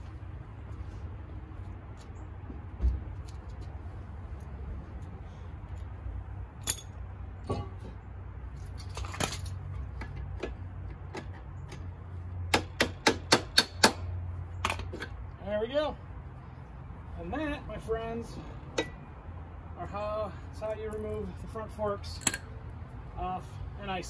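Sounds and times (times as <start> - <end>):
metal tools clicking: 22.1 - 22.5.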